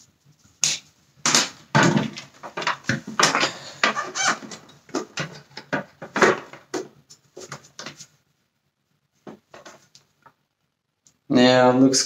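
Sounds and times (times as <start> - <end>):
plastic parts knocking and rattling: 1.2 - 8.0.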